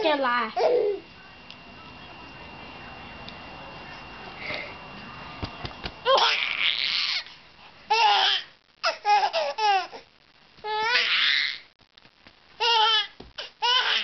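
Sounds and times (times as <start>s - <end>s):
baby laughing hard: 7.9s - 10.0s.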